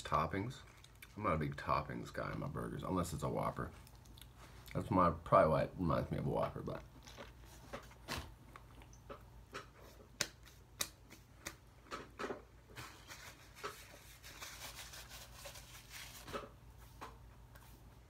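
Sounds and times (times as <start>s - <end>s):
person chewing: 0.6s - 1.2s, 3.8s - 4.8s, 6.8s - 12.0s.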